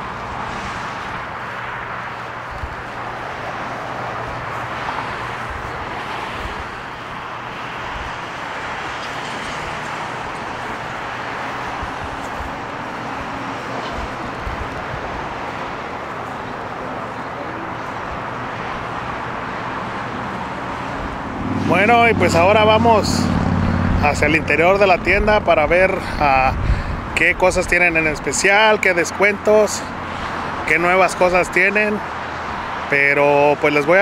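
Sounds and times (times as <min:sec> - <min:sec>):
vehicle running hum: 0:00.0 - 0:32.9.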